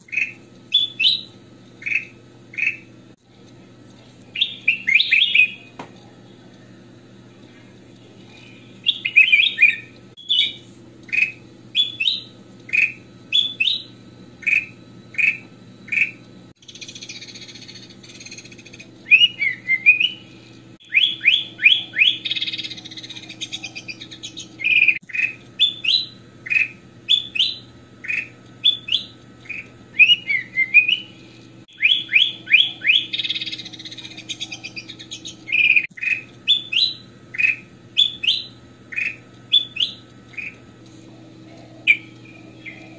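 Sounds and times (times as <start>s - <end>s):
bird whistling song: 0.0s - 2.9s, 4.3s - 5.8s, 8.3s - 40.6s, 41.5s - 42.9s
faint steady hum: 0.0s - 42.9s
bird harsh chattering: 0.1s - 2.9s, 8.8s - 20.2s, 20.9s - 31.0s, 31.8s - 40.6s.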